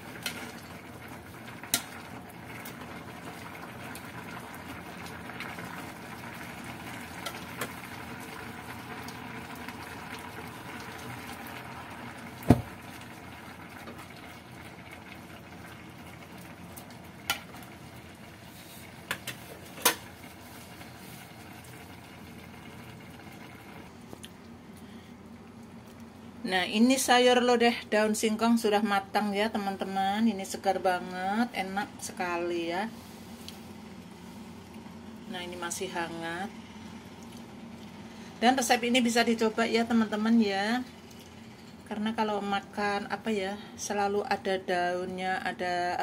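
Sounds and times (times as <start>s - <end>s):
stew bubbling in a pot: 0.0s - 26.4s, 33.1s - 42.0s.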